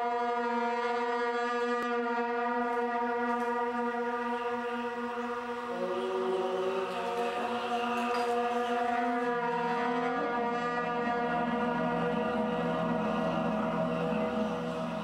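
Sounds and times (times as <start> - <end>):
chant-like drone music: 0.0 - 15.0.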